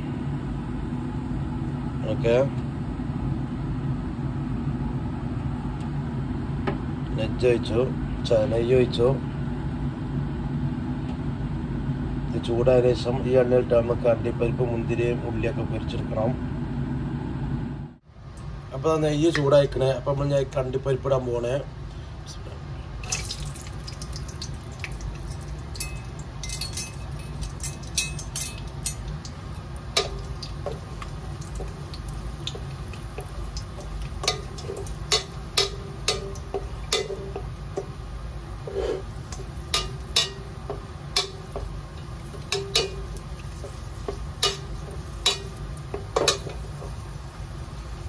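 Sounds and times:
low steady hum: 0.0 - 48.0
nuts sizzling in oil: 23.0 - 48.0
spoon clinking and scraping pot: 25.2 - 29.2, 33.2 - 37.9, 38.6 - 41.7, 42.3 - 46.8.

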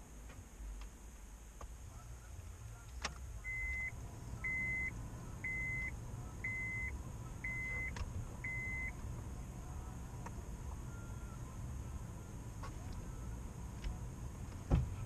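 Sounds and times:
car engine hum: 0.0 - 15.0
electronic warning chime beeps: 3.5 - 8.9.

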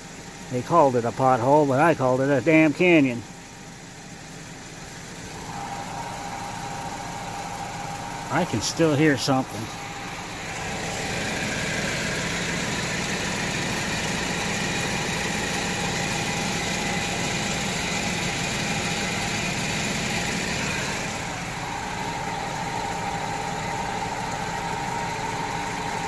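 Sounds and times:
wheel hub noise: 3.2 - 26.0
steady high whine: 5.2 - 26.0.

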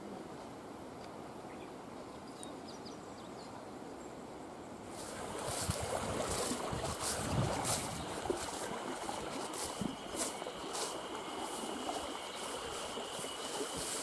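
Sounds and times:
tall grass rustling: 4.8 - 14.0
footsteps through grass: 4.9 - 14.0
faint bird chirps: 9.5 - 14.0.

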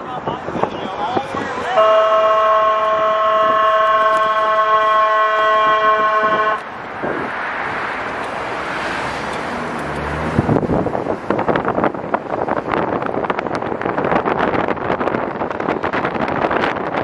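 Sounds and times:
road noise: 0.0 - 17.0
wind noise: 0.0 - 17.0
horn sounding a chord: 1.6 - 6.7.

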